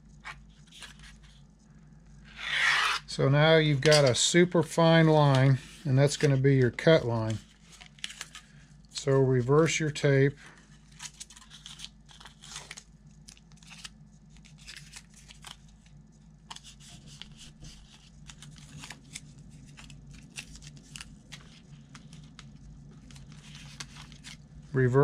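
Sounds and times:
steady low hum: 0:00.0 - 0:25.0
tape peeling crackles: 0:10.9 - 0:24.5.

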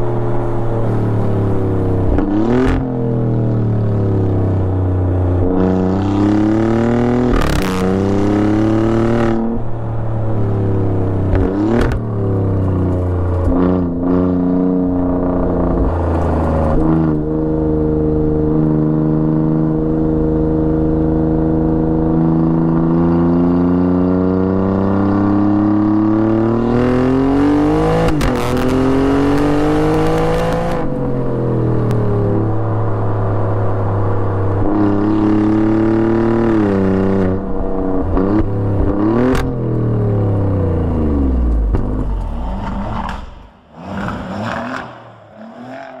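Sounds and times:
car exhaust revving: 0:34.6 - 0:46.0
exhaust cracks: 0:40.7 - 0:46.0.

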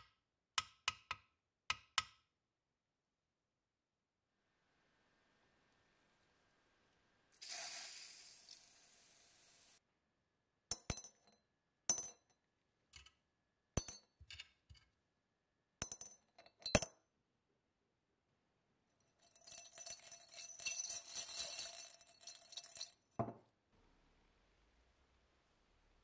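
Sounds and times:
metal parts clinking on glass jar: 0:19.2 - 0:23.0
metal rattling in glass jar: 0:19.2 - 0:23.1.

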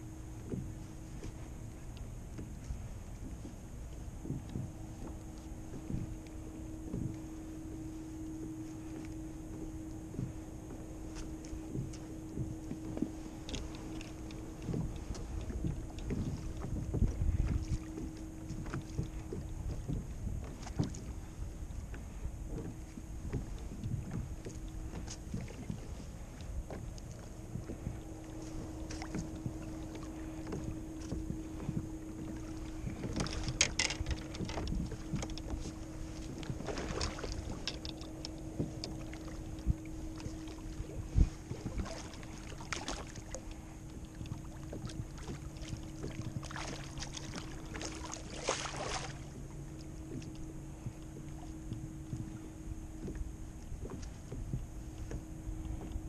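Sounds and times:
faint steady hum: 0:00.0 - 0:56.0
water lapping against hull: 0:00.0 - 0:56.0
wind on microphone: 0:00.0 - 0:56.0
fishing gear knocks and clicks: 0:09.0 - 0:21.1, 0:22.5 - 0:46.2.

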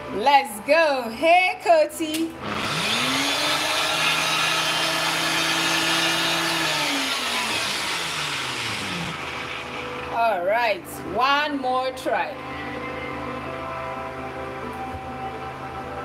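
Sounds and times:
blender motor whining: 0:02.4 - 0:10.1.

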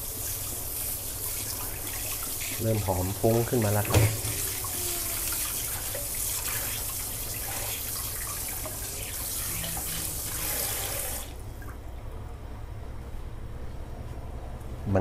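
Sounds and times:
water running from tap: 0:00.0 - 0:11.8.

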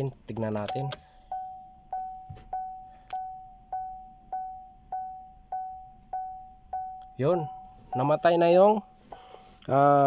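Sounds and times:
electronic warning chime: 0:00.7 - 0:09.0.

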